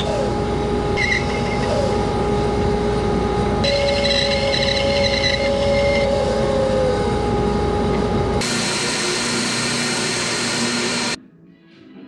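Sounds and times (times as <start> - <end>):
bandsaw running: 3.6 - 11.2.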